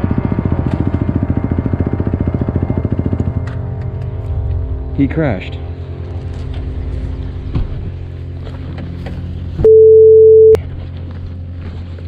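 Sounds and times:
low hum: 0.0s - 12.0s
censor bleep: 9.6s - 10.6s.

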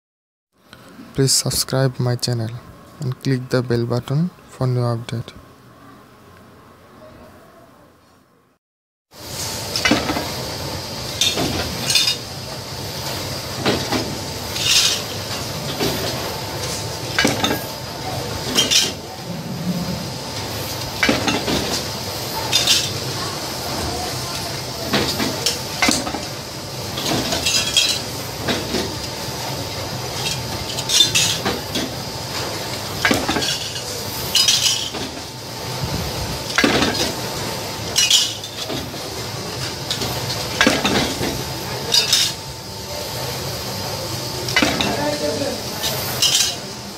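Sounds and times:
steel sheets clanking: 13.6s - 17.7s, 18.4s - 23.1s, 24.9s - 29.0s, 30.1s - 32.0s, 33.0s - 35.2s, 37.9s - 39.1s.

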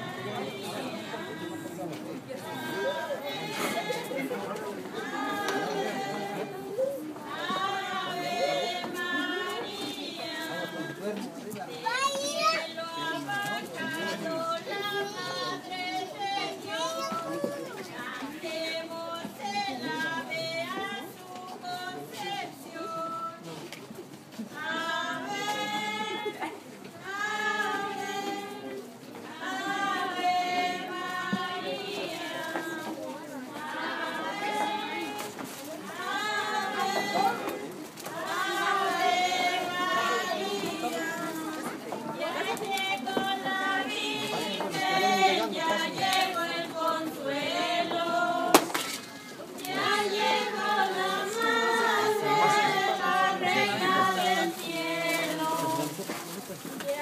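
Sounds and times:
group singing held notes: 0.0s - 57.0s.

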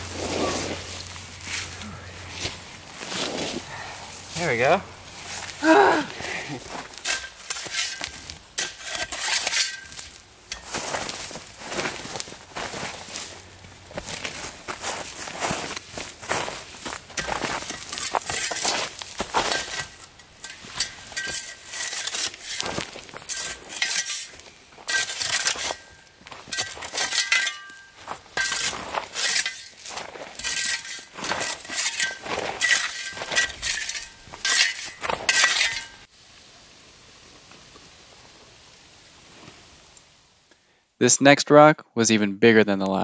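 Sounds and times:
pick clinking on rock: 23.4s - 29.8s, 30.4s - 36.0s.

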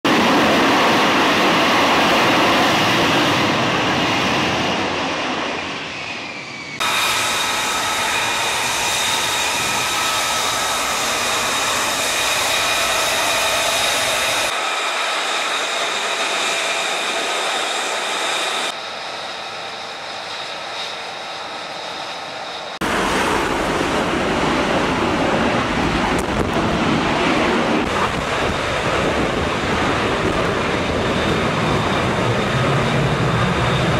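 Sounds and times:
jet engine high whine: 0.0s - 33.9s
jet engine rushing blast: 0.1s - 33.9s.

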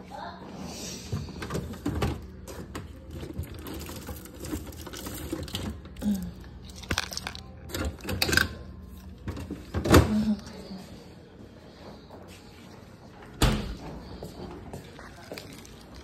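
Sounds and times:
low steady refrigerator hum: 0.0s - 16.0s
containers and bottles moved: 6.7s - 8.6s.

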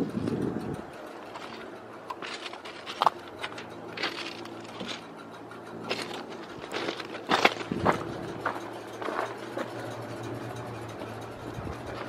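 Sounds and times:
footsteps crunching on gravel: 1.3s - 5.1s, 5.9s - 9.8s.

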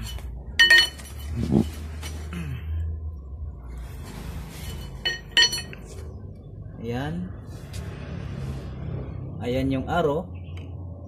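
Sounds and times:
steel tool clinking on metal: 0.0s - 1.2s, 5.0s - 5.8s
low steady hum: 0.0s - 9.0s.

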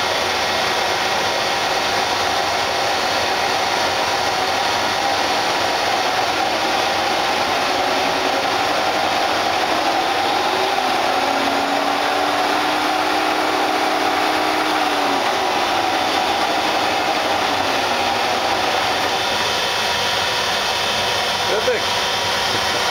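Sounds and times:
lower hum rising and falling: 0.0s - 21.3s
constant whine: 0.0s - 22.9s
lathe motor whirring: 0.0s - 22.9s.

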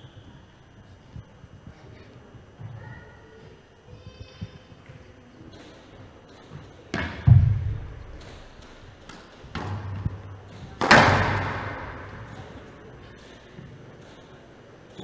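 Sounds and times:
squash ball thudding in a hall: 4.7s - 15.0s.

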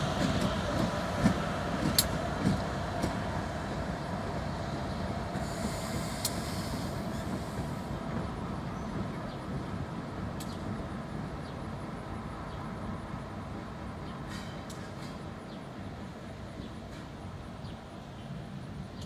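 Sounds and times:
diesel train engine rumble: 0.0s - 19.0s
sharp rail clicks: 0.2s - 3.2s.

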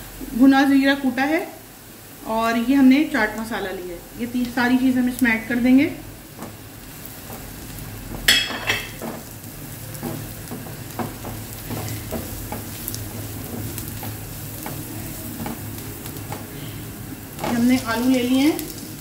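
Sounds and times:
onions sizzling in oil: 0.0s - 19.0s
spatula scraping frying pan: 6.4s - 18.8s.

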